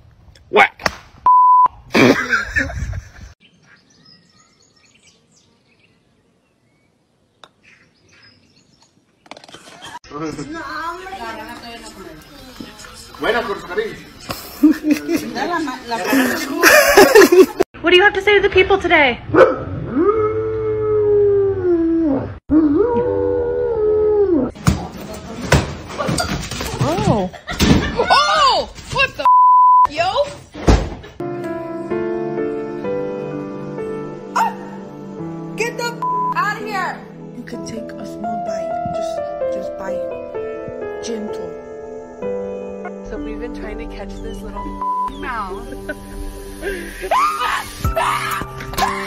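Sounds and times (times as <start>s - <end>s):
birds chirping: 3.3s - 14.8s, 40.7s - 47.6s
dog howling: 19.8s - 24.6s.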